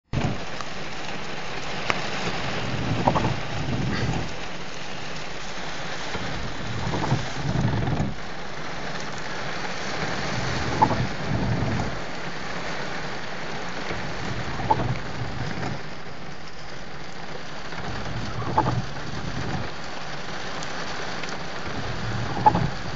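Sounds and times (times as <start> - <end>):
floodwater rushing: 0.1 - 22.9
heavy rain on car roof: 0.1 - 22.9.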